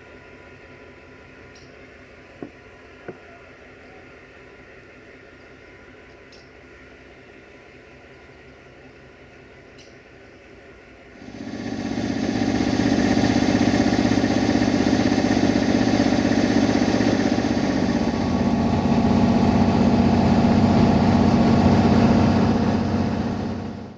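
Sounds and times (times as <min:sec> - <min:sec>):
locomotive engine running: 0:11.1 - 0:23.9.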